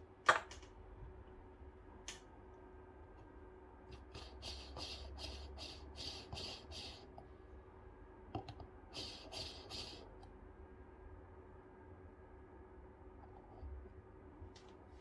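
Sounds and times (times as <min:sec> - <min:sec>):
scratchy strokes on coffee grounds: 0:04.0 - 0:07.1, 0:09.0 - 0:10.1.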